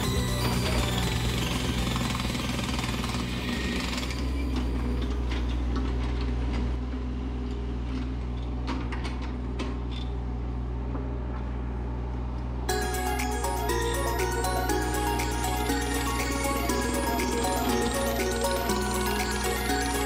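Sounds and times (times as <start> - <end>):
excavator diesel engine running: 0.0 - 8.7, 12.7 - 20.0.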